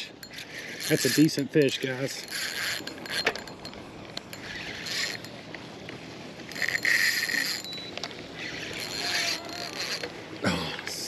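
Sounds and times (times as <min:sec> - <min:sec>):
fishing reel whirring: 0:00.0 - 0:05.5, 0:06.4 - 0:10.2.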